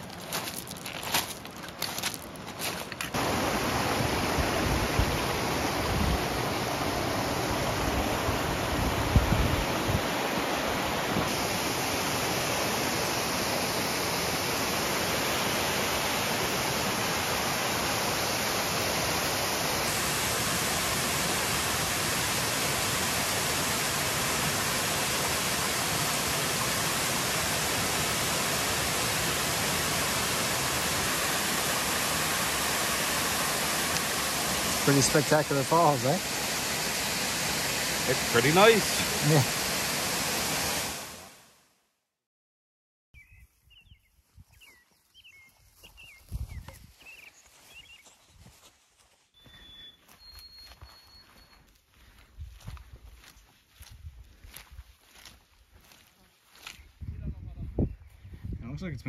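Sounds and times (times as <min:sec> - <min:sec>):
waterfall roaring: 0:03.2 - 0:41.4.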